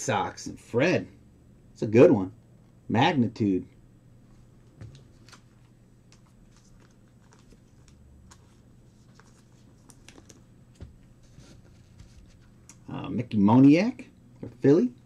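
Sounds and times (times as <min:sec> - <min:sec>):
trading cards and wrappers rustling: 0:04.9 - 0:12.6.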